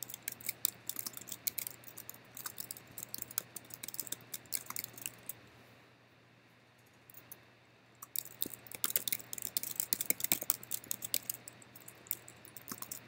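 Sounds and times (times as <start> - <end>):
typing on computer keyboard: 0.0 - 5.4, 8.0 - 13.0.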